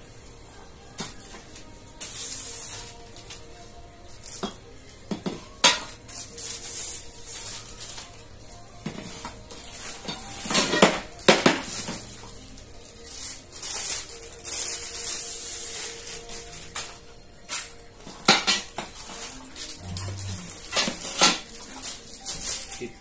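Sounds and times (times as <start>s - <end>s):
plastic wrap crinkling: 5.9s - 8.8s, 11.1s - 23.0s.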